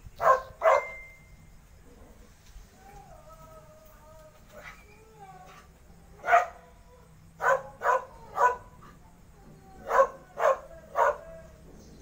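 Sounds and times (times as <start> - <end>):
dog barking: 0.2 - 1.0, 6.2 - 6.6, 7.4 - 8.9, 9.8 - 11.4.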